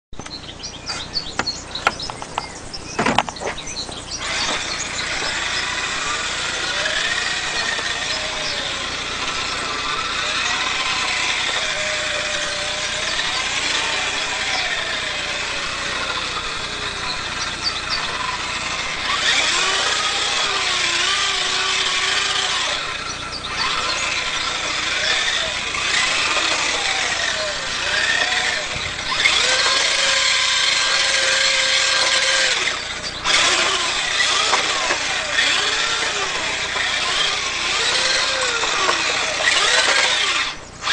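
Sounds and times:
sharp clicks and knocks: 0:00.1 - 0:05.7, 0:23.6 - 0:40.9
electric motor whining: 0:00.2 - 0:40.9.

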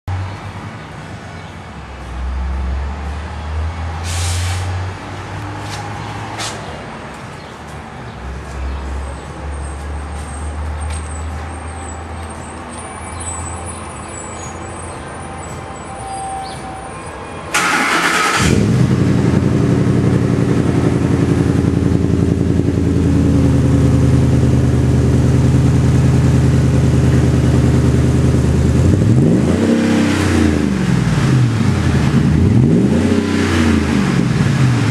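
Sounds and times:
engine starting: 0:17.5 - 0:18.9
engine idling loudly: 0:17.6 - 0:29.0
engine revving: 0:17.6 - 0:34.9.

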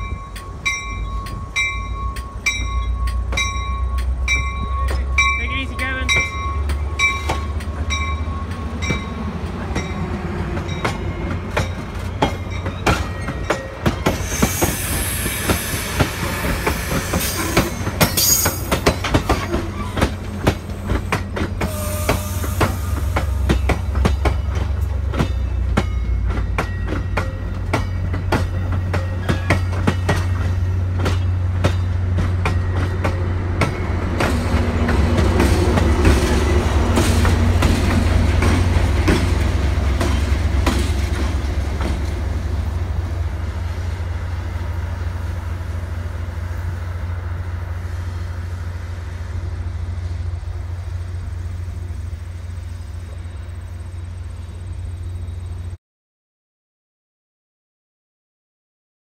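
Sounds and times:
diesel locomotive hum: 0:00.0 - 0:55.8
train cars rumbling past: 0:00.0 - 0:55.8
high wheel squeals: 0:14.0 - 0:20.1
wheels clicking over rail joints: 0:16.1 - 0:21.8.

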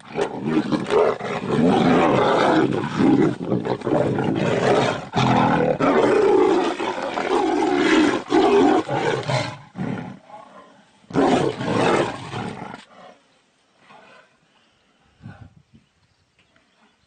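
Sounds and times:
tigers roaring while fighting: 0:00.0 - 0:10.5.

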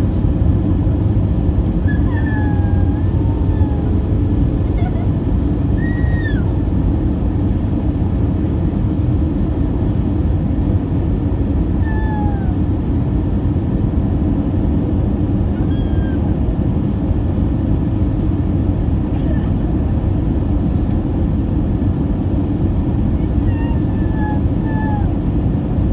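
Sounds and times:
airliner cabin engine roar: 0:00.0 - 0:25.9
high-pitched falling cries: 0:05.8 - 0:06.5, 0:15.6 - 0:16.2.

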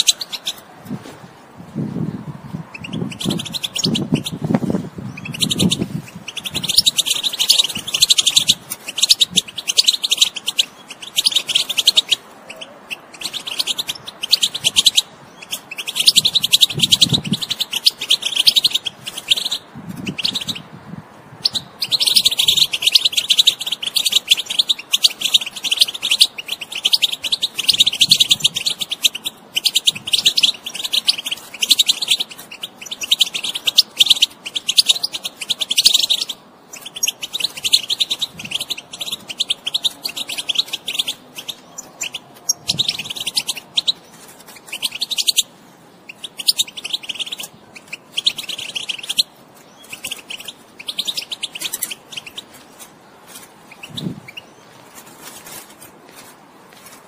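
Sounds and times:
finch twittering: 0:00.0 - 0:00.6, 0:02.0 - 0:56.3.

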